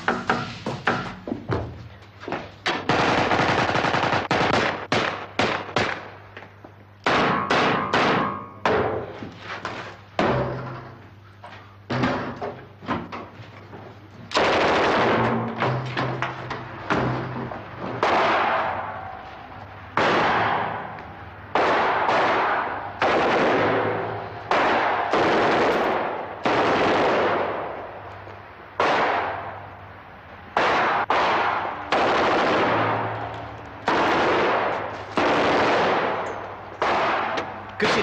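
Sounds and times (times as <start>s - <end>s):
echoing gunshots: 2.7s - 6.3s, 7.0s - 9.0s, 14.3s - 16.2s, 16.9s - 19.2s, 19.9s - 28.0s, 28.7s - 29.8s, 30.5s - 38.0s.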